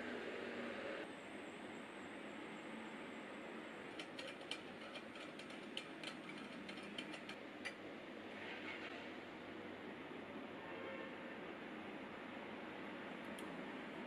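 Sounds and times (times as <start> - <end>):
small metal clicks: 3.9 - 7.8.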